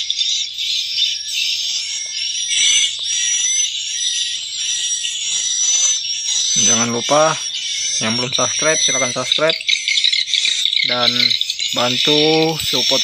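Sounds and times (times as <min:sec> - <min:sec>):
recorded bird chirps and twitters: 0:00.0 - 0:13.0
thin whistling glides: 0:10.8 - 0:13.0.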